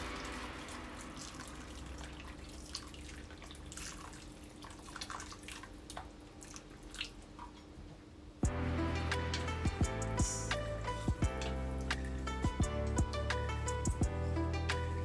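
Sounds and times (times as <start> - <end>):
hot water pouring into metal bowl: 0.0 - 5.8.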